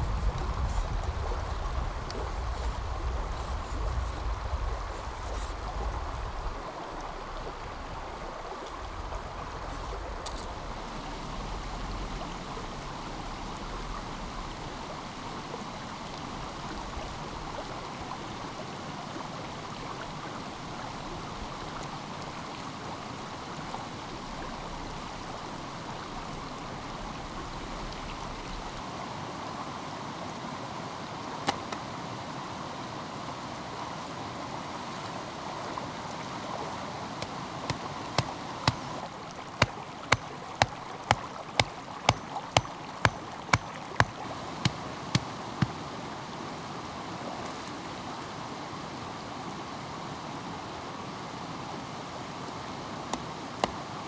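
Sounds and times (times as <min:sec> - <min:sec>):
low rumble: 0:00.0 - 0:08.1
stream flowing: 0:00.0 - 0:54.0.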